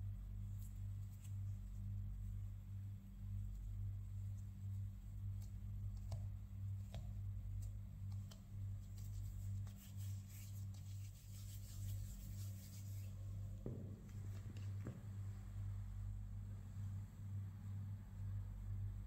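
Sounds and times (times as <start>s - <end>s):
steady low hum: 0.0s - 19.0s
fingers rubbing dough: 5.4s - 13.3s.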